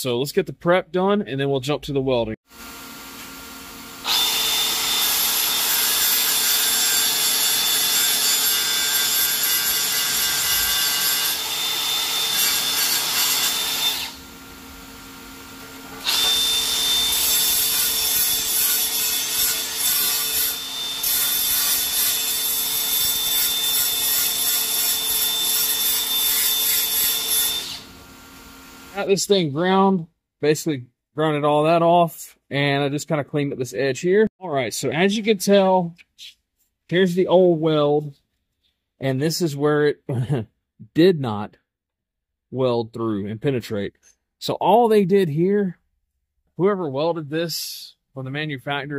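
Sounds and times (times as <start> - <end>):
angle grinder grinding metal: 2.6 - 29.2.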